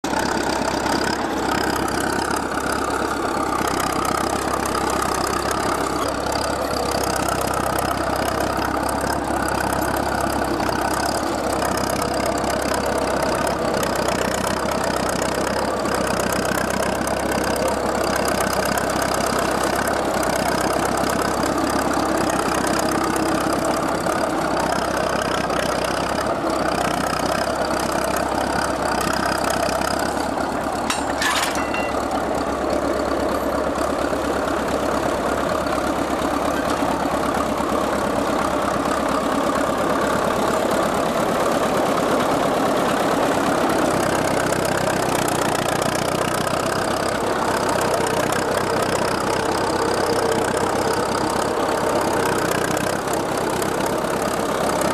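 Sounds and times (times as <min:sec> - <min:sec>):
diesel engine running under load: 0:00.0 - 0:54.9
machinery clatter: 0:29.8 - 0:32.8.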